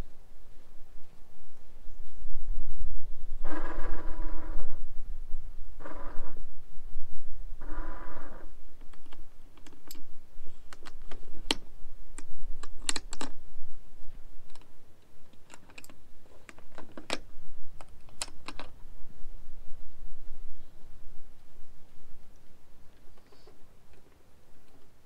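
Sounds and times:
wind rumble on microphone: 0.0 - 15.3, 16.1 - 23.0
sharp clicks and knocks: 10.7 - 13.4, 15.3 - 18.8.

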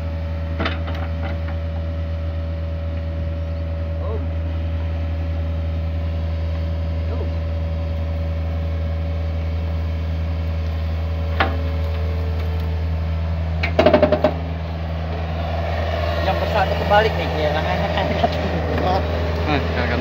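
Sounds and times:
excavator diesel engine running: 0.0 - 20.0
sharp knocks: 13.6 - 14.5.

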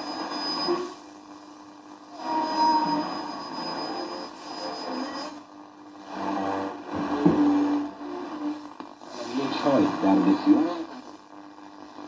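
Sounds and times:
radio static and hiss: 0.0 - 12.0
radio broadcast snatches: 3.1 - 12.0.

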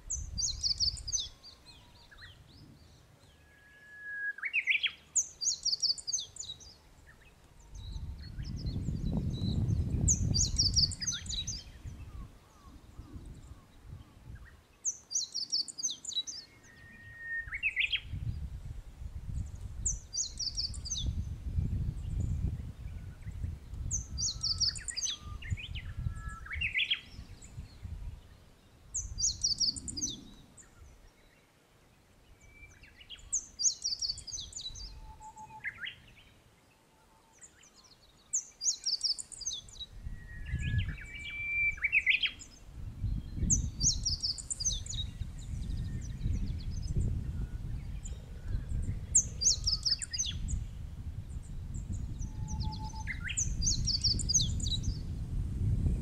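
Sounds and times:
songbirds singing: 0.0 - 18.5, 19.3 - 56.0
wind rumble: 7.0 - 14.7, 17.4 - 31.1, 39.6 - 56.0.

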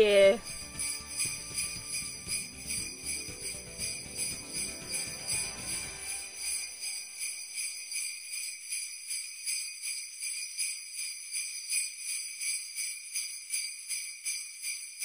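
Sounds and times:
low backing music: 0.0 - 6.9
sleigh bells jingling: 0.0 - 15.0.

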